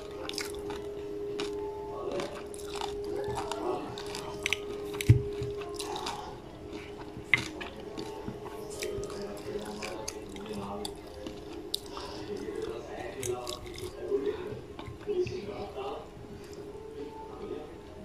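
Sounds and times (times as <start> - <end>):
crackling chewing: 0.0 - 17.5.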